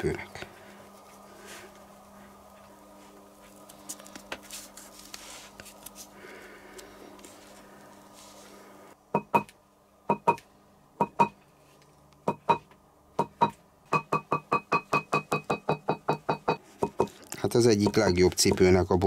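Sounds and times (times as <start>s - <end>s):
hammer striking leather on marble: 12.3s - 17.1s.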